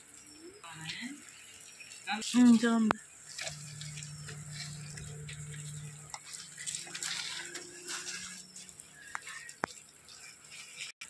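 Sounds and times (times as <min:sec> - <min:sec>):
wheels crackling on wet gravel: 0:00.0 - 0:11.0
toy electric motor humming: 0:03.4 - 0:09.8.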